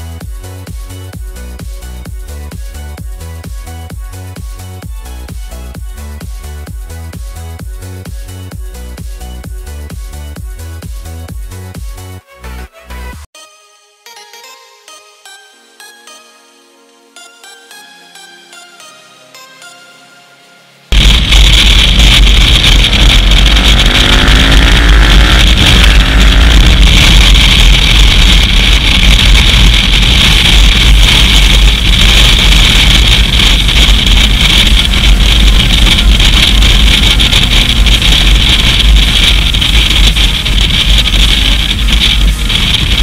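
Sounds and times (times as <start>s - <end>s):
motorcycle engine roaring: 20.9s - 43.0s
wind buffeting microphone: 20.9s - 43.0s.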